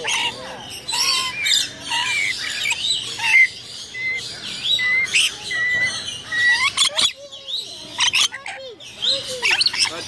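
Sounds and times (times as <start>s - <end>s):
parrots chirping and calling: 0.0s - 10.0s
bird whistles: 0.9s - 8.3s.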